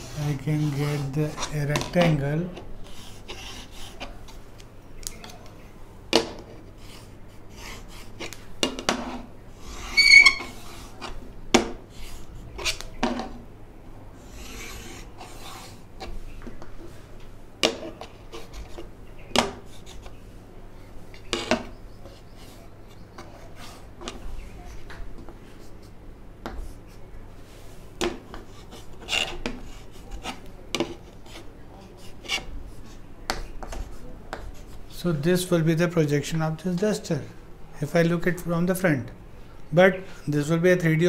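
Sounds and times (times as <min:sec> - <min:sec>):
chalk scraping on chalkboard: 0:00.0 - 0:04.4, 0:06.5 - 0:11.2, 0:11.9 - 0:12.9, 0:14.2 - 0:16.2, 0:17.8 - 0:20.2, 0:21.3 - 0:25.9, 0:26.5 - 0:35.0
high chalk squeak: 0:09.0 - 0:11.2.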